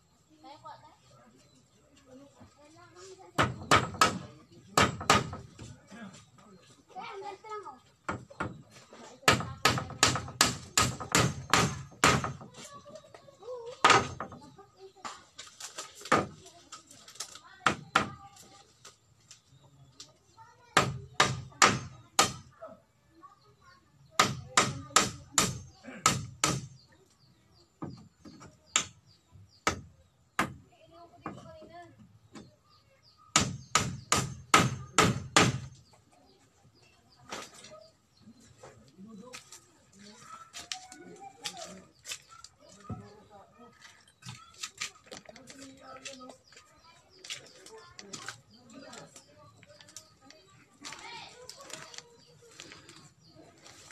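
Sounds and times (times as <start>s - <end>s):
sharp knocks: 3.4s - 5.6s
tool knocking on bamboo: 3.4s - 5.7s, 8.0s - 8.6s, 9.2s - 12.5s, 24.2s - 26.8s, 27.8s - 29.0s, 33.3s - 35.8s.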